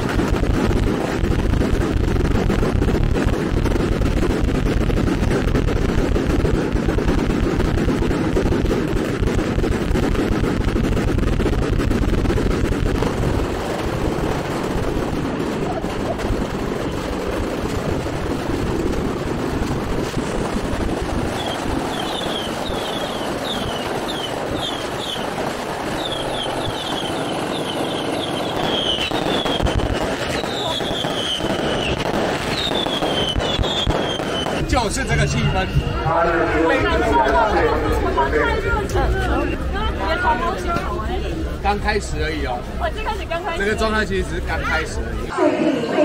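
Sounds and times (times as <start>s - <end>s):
heavy low rumble: 0.0s - 24.6s, 34.6s - 45.4s
firecrackers crackling: 0.0s - 45.3s.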